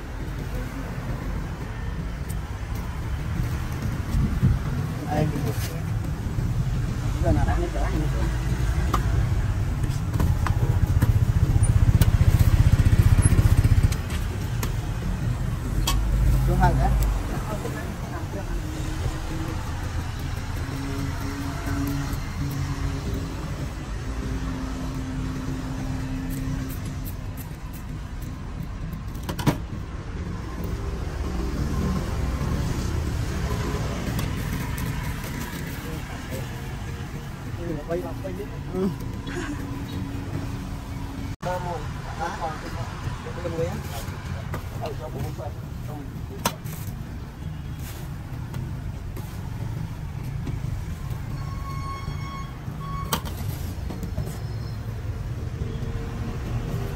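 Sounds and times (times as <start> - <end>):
traffic rumble: 0.0 - 56.9
motorcycle engine running: 8.7 - 15.7.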